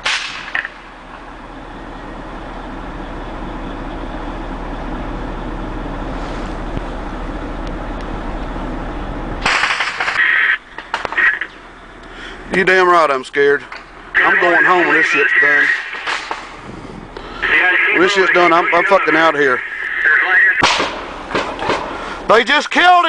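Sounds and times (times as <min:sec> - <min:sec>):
truck engine and road rumble: 0:00.0 - 0:23.0.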